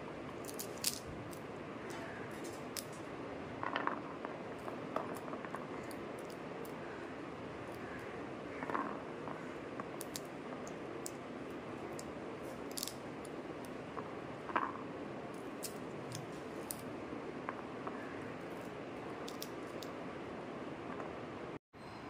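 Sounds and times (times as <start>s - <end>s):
steady background hiss: 0.0s - 22.0s
seeds ticking onto a plate: 7.7s - 11.2s, 11.8s - 14.8s, 17.5s - 20.0s.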